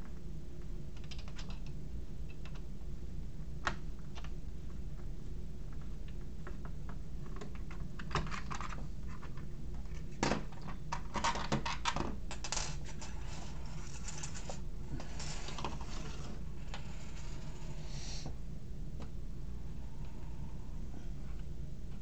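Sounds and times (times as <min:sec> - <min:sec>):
soft scraping and rustling: 0:12.8 - 0:18.3.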